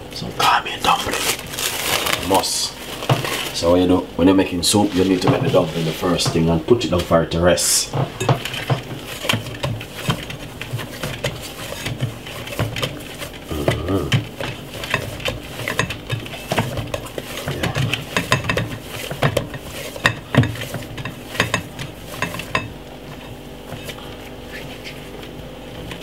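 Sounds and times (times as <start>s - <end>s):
dough knocking against glass bowl: 14.1s - 22.8s.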